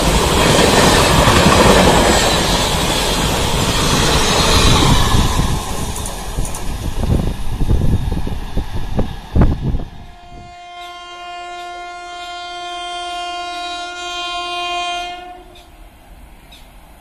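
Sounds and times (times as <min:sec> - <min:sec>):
train rumbling and clattering past: 0:00.0 - 0:10.2
locomotive horn blast: 0:10.1 - 0:15.7.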